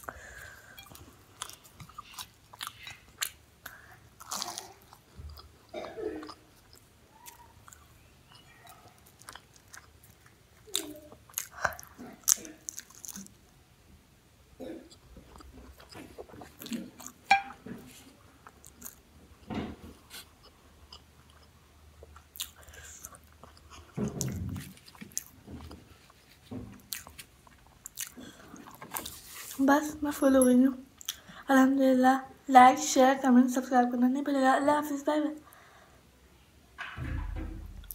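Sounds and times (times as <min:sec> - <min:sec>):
wet chewing: 0:00.2 - 0:13.4, 0:14.9 - 0:17.6, 0:20.1 - 0:29.6
crisp pastry crunching: 0:00.2 - 0:13.5.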